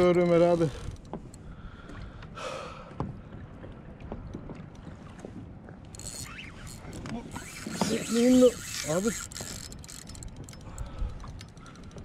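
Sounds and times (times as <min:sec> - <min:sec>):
water sloshing against kayak hull: 0:00.0 - 0:12.0
small knocks from boat gear: 0:00.9 - 0:02.3, 0:03.0 - 0:08.1
person breathing hard: 0:01.5 - 0:03.0.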